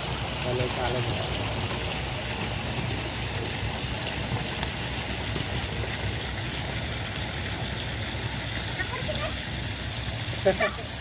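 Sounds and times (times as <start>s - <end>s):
rushing pool water: 0.0s - 11.0s.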